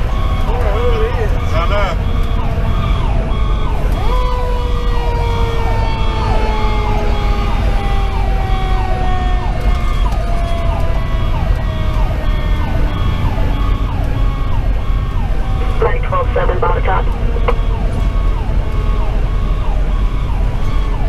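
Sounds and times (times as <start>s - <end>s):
mechanical siren winding down: 0.0s - 15.7s
diesel engine rumble: 0.0s - 21.0s
electronic siren yelping: 0.0s - 21.0s.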